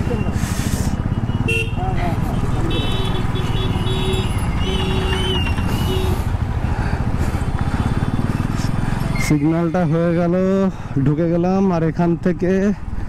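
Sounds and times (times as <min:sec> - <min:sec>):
motorcycle engine running: 0:01.0 - 0:09.2
vehicle horns beeping: 0:01.2 - 0:06.4.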